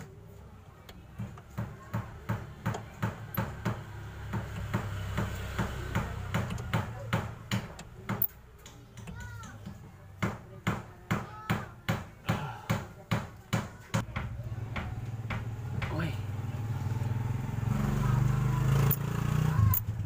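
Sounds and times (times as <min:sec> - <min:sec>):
tool knocking on metal: 0:01.1 - 0:16.1.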